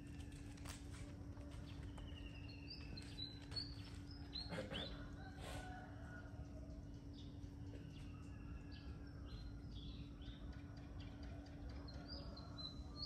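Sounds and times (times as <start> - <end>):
birds chirping and whistling: 1.8 - 5.0.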